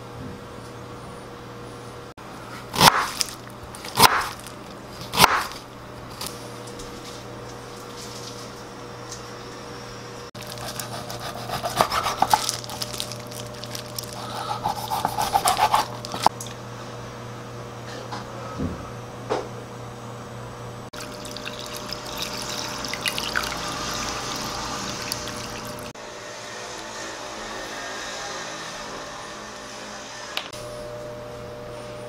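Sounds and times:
knife chopping on wooden board: 0:02.7 - 0:05.6, 0:10.6 - 0:12.6, 0:14.4 - 0:16.3
knife sawing through ribs: 0:10.4 - 0:13.1, 0:13.9 - 0:16.3.

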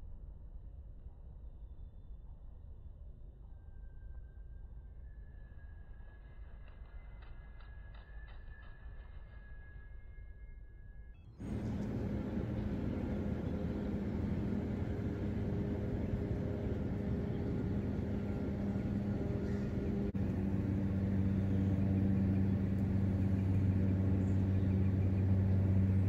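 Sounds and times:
low steady rumble with hum: 0:11.4 - 0:26.0.

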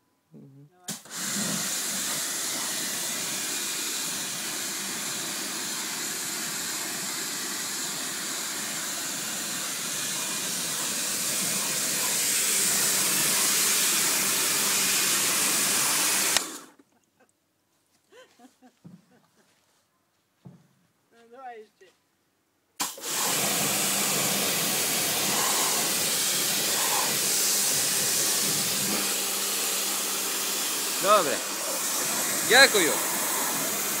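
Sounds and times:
high-pressure water jet hissing: 0:00.9 - 0:16.7, 0:22.8 - 0:34.0
pressure washer motor humming: 0:00.9 - 0:16.7, 0:22.8 - 0:34.0.

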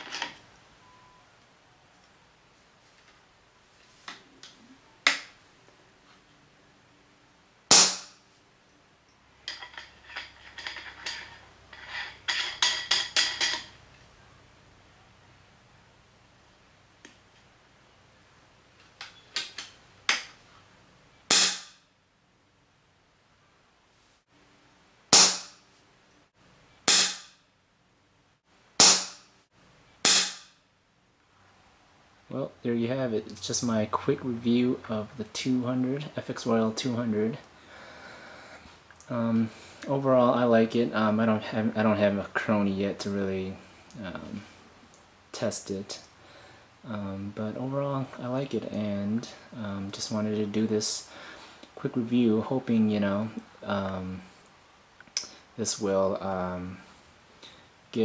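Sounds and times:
air rifle shot: 0:07.7 - 0:08.2, 0:21.3 - 0:21.8, 0:25.1 - 0:25.6, 0:26.9 - 0:27.3, 0:28.8 - 0:29.2, 0:30.0 - 0:30.5.

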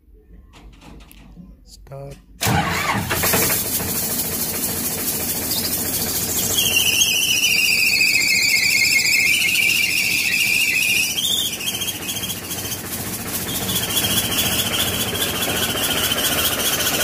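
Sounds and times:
diesel engine running: 0:02.4 - 0:17.0
high squealing exhaust whistle: 0:05.2 - 0:17.0.

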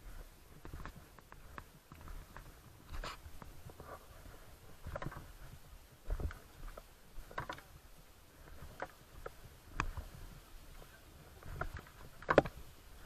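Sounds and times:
footsteps on loose rocks: 0:00.0 - 0:13.0.

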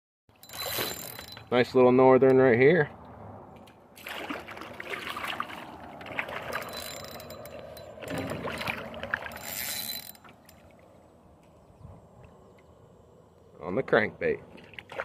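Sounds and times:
fish thrashing and splashing: 0:04.0 - 0:10.9, 0:14.6 - 0:15.0.

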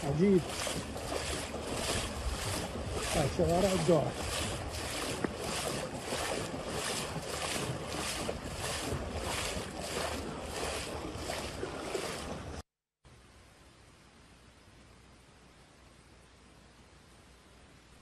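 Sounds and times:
wind buffeting microphone: 0:00.0 - 0:12.6.

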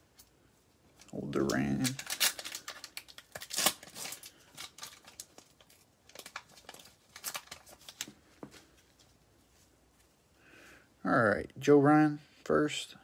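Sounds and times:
foil wrapper tearing and crinkling: 0:01.1 - 0:08.1.

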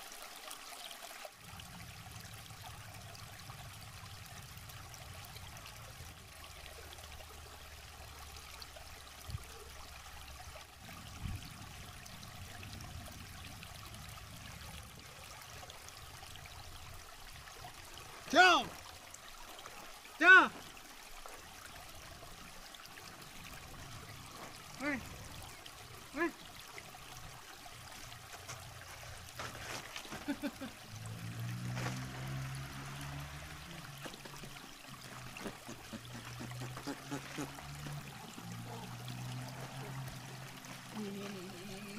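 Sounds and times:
river water flowing: 0:00.0 - 0:41.9
stream trickling over rocks: 0:00.0 - 0:41.9
man laughing: 0:30.0 - 0:30.9.

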